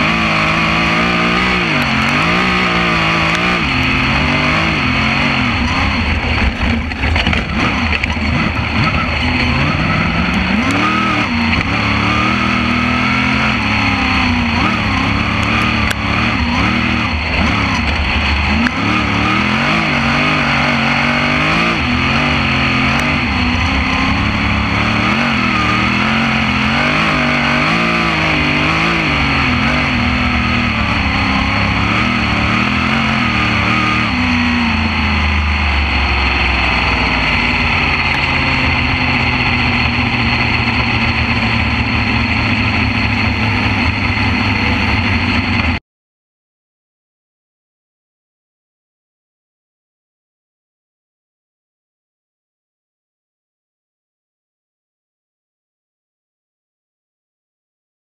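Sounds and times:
race car engine revving: 0.0 - 45.8.

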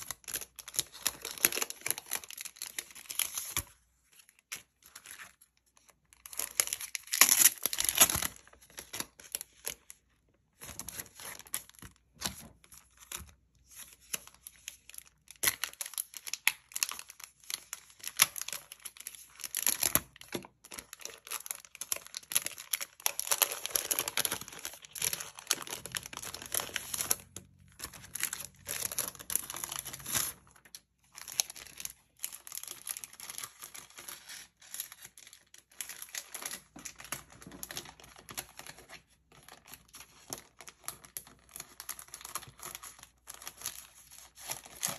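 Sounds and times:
plastic pouch crinkling: 14.3 - 44.9.

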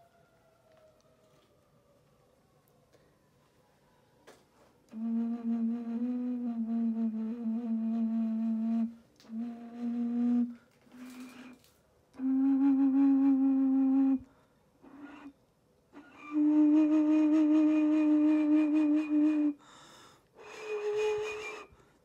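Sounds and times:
low clay vessel flute notes: 4.9 - 11.6, 12.2 - 15.4, 16.0 - 19.6, 20.4 - 21.8.

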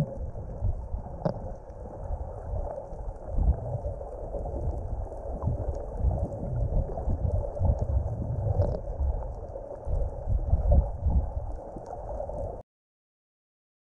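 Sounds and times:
underwater rumbling and sloshing: 0.0 - 12.6.

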